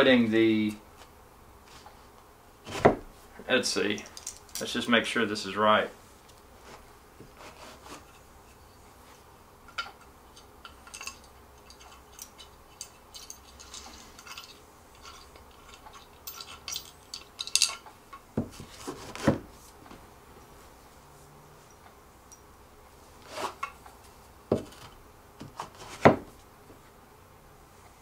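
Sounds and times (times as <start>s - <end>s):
metal hardware clicking: 9.7s - 18.2s
wood and metal knocks: 24.5s - 24.8s.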